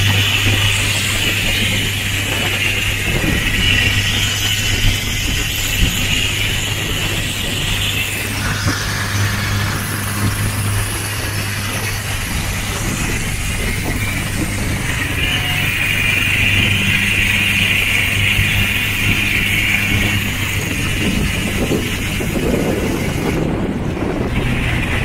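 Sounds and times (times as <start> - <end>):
motorboat engine droning: 0.0 - 25.0
water rushing along hull: 0.0 - 25.0.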